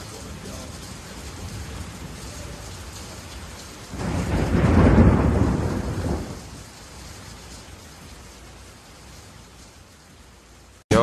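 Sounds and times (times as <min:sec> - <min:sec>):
rain: 0:00.0 - 0:11.0
thunder rolling: 0:00.4 - 0:06.7.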